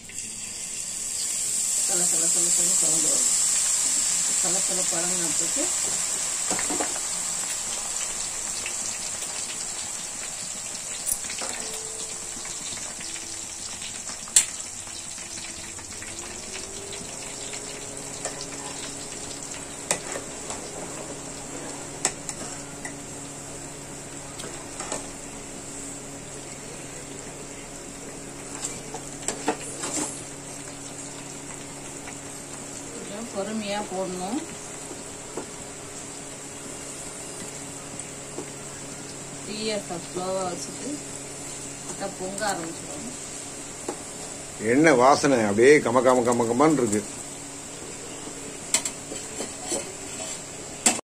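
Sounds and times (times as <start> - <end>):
paste sizzling in hot oil: 0.0 - 22.4.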